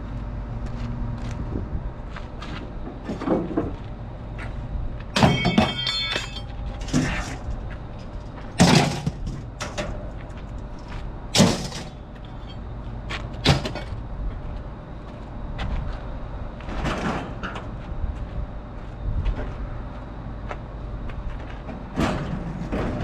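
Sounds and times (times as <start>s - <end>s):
steady low rumble: 0.0s - 23.0s
scrap metal banging: 5.2s - 7.6s, 8.6s - 10.0s
metal clattering scrape: 5.2s - 9.4s.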